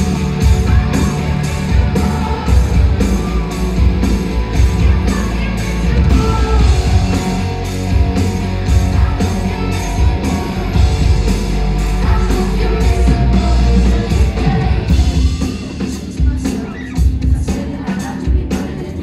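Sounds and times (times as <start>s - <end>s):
live rock band playing: 0.0s - 19.0s
woman singing: 4.5s - 7.1s, 11.9s - 19.0s.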